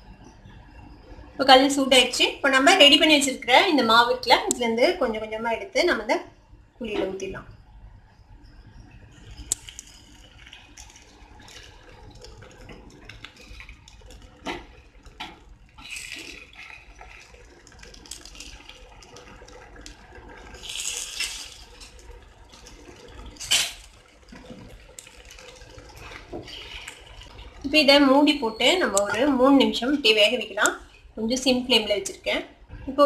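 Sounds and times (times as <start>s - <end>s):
batter sizzling in hot pan: 8.1s - 30.0s.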